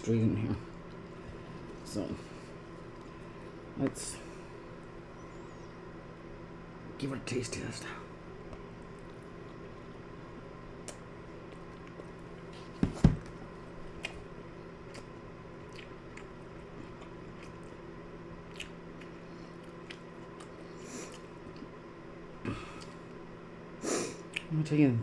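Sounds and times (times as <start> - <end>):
low room hum: 0.0 - 25.0
wet mouth clicks: 10.8 - 12.0, 18.5 - 21.7, 24.2 - 24.5
person chewing food: 10.8 - 21.8, 22.6 - 23.2, 24.1 - 24.5.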